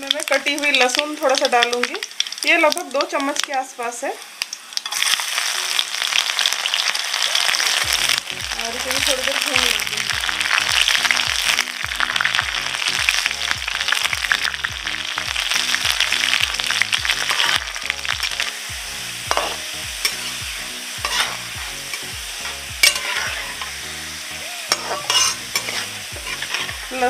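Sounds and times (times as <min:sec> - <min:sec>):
garlic sizzling in hot oil: 0:00.0 - 0:27.0
metal spatula scraping pan: 0:19.3 - 0:20.4, 0:21.0 - 0:23.9, 0:24.7 - 0:27.0.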